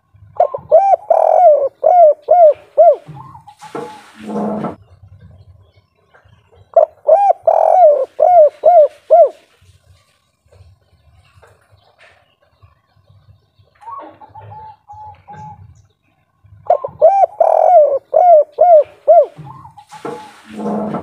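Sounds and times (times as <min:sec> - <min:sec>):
dove cooing: 0:00.2 - 0:04.8, 0:06.8 - 0:09.5, 0:13.8 - 0:15.8, 0:16.6 - 0:21.0.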